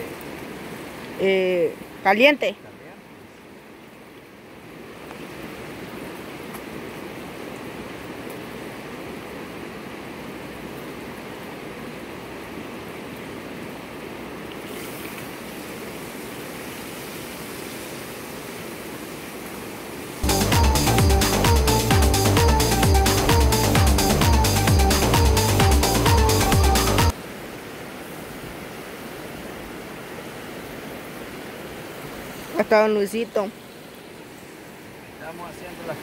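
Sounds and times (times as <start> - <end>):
fish sizzling in hot oil: 14.7 - 18.0
electronic dance music: 20.2 - 27.1.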